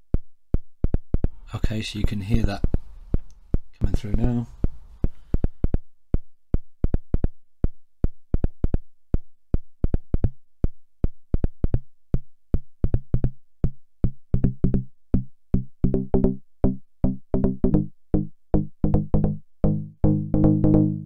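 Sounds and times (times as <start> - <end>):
synth plucked note sequence: 15.8 - 21.0.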